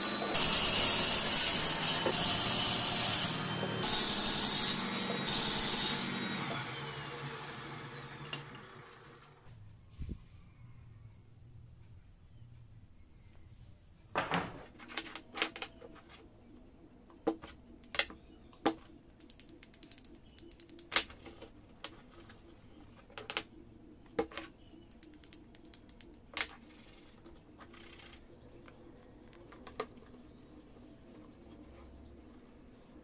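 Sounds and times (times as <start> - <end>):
wooden pieces clacking on table: 14.2 - 16.2, 22.9 - 23.5.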